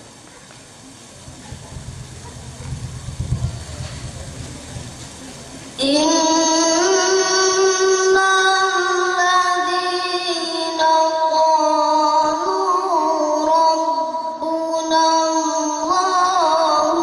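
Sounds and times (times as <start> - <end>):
boy reciting melodically over loudspeakers: 5.7 - 17.0.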